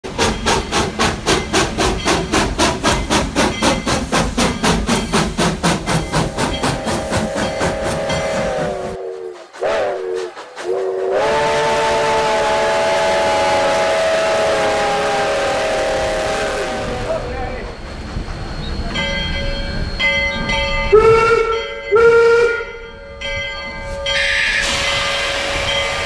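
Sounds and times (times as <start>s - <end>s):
steam locomotive chuffing: 0.0s - 26.0s
steam whistle chord: 6.3s - 17.2s, 24.0s - 26.0s.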